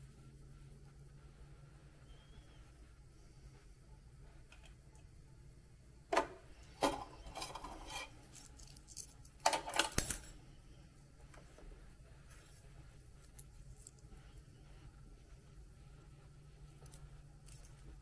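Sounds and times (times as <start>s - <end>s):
keyring jingling against plastic: 8.2s - 10.4s.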